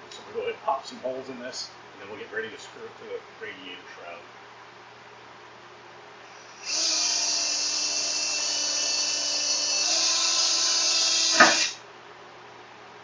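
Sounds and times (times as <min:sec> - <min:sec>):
power drill whining: 0:06.3 - 0:11.8.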